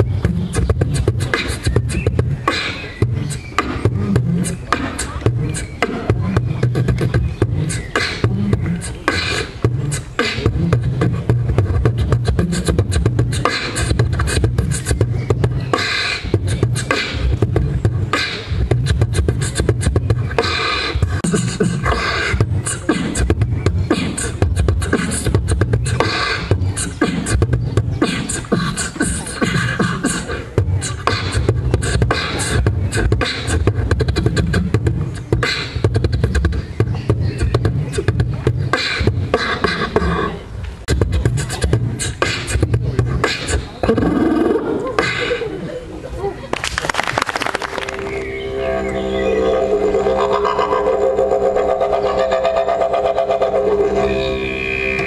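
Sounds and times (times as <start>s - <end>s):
amplified beatboxing: 0.0s - 45.8s, 46.6s - 48.3s, 49.7s - 55.0s.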